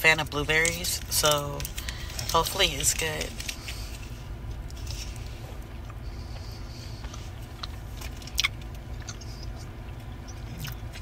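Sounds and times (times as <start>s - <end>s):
low hum: 0.0s - 11.0s
chewing gummy candy: 4.6s - 11.0s.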